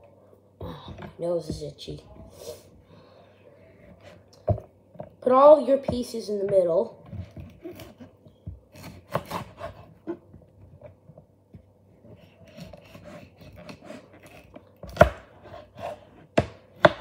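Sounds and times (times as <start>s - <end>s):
blade scraping pepper pieces: 7.3s - 10.2s, 12.2s - 16.2s
knife chop: 8.7s - 9.9s, 12.5s - 17.0s.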